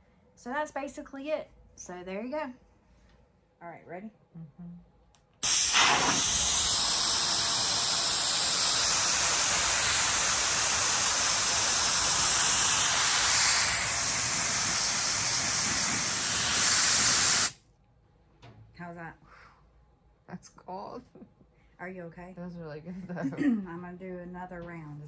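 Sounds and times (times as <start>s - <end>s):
loud hiss of cold spray: 5.4s - 17.6s.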